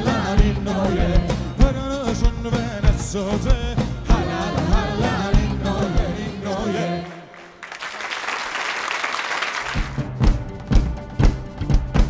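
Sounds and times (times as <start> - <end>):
singers and live band: 0.0 - 7.6
audience applauding: 7.0 - 10.2.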